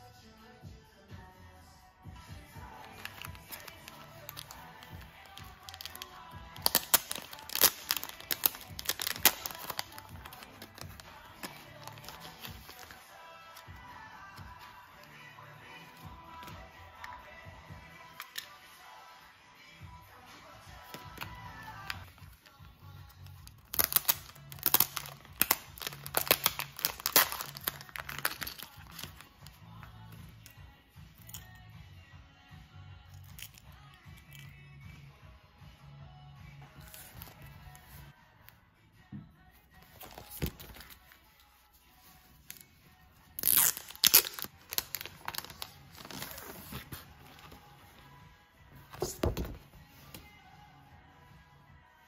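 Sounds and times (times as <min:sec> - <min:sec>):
soft background music: 0:00.0 - 0:52.0
foil pouch tearing and crinkling: 0:02.8 - 0:13.5, 0:23.6 - 0:29.3, 0:43.4 - 0:47.6.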